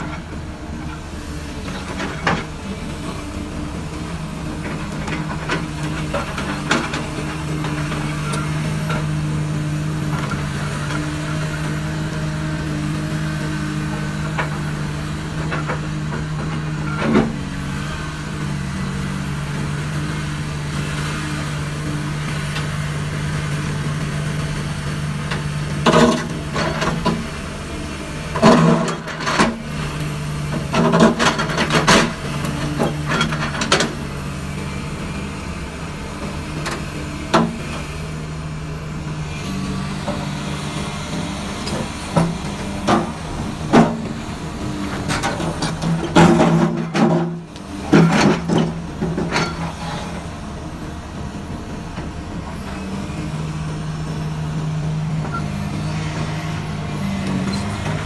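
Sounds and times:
excavator diesel engine running: 0.0 - 58.0.

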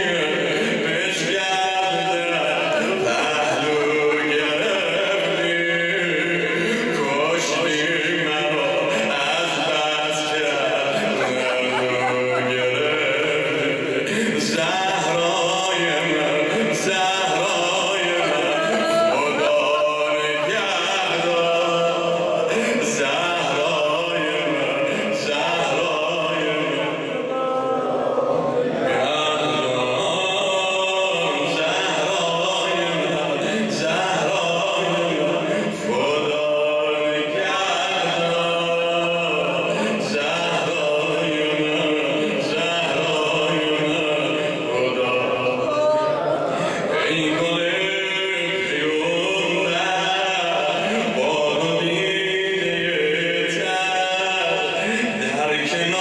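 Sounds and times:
man chanting melodically: 0.0 - 56.0.

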